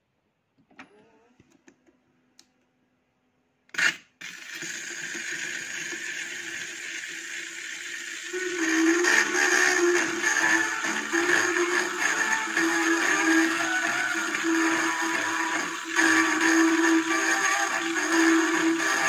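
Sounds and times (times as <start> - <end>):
music from record: 8.3 - 19.0.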